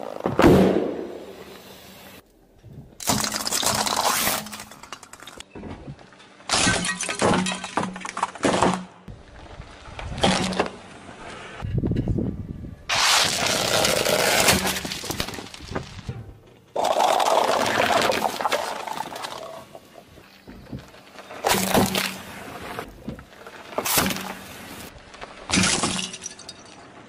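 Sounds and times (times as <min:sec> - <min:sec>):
tyre crushing breaking glass: 0:03.0 - 0:05.4, 0:06.5 - 0:08.9, 0:12.9 - 0:16.1, 0:21.3 - 0:22.9, 0:25.4 - 0:27.0.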